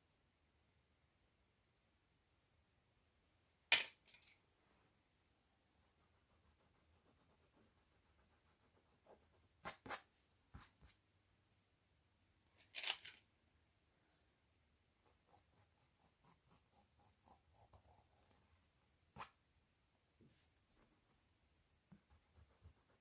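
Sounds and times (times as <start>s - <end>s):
pencil strokes on canvas: 5.8s - 11.0s, 15.0s - 19.4s, 21.9s - 23.0s.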